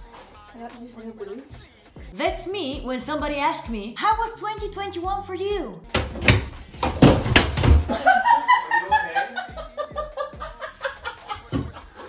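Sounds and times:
heavy thuds against a door: 0:06.0 - 0:07.9
woman laughing hard: 0:07.9 - 0:12.0.

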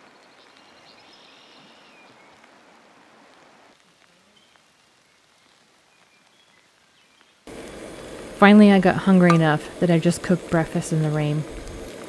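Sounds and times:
light rain falling: 0:00.0 - 0:12.0.

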